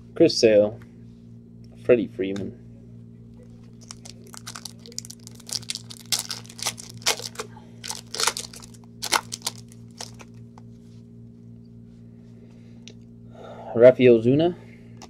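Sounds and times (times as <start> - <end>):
foil wrapper tearing and crumpling: 3.8 - 10.3.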